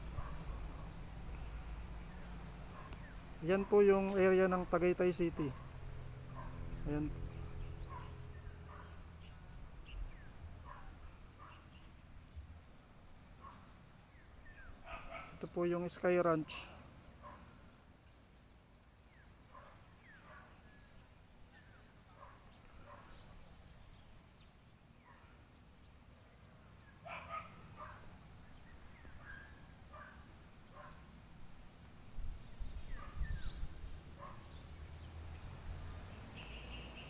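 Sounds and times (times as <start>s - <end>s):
faint dogs barking: 0.0s - 4.5s, 5.2s - 7.2s, 7.8s - 9.4s, 10.2s - 11.9s, 13.3s - 13.8s, 14.5s - 17.7s, 19.4s - 23.6s, 25.0s - 25.5s, 26.8s - 31.2s, 32.6s - 34.7s.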